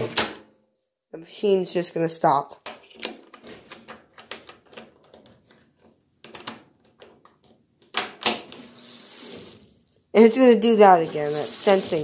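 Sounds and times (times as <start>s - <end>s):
water rushing into tub: 10.9s - 12.0s.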